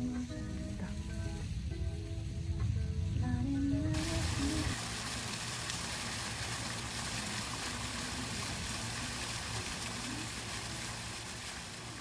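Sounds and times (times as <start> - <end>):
fountain splashing into pond: 3.9 - 12.0.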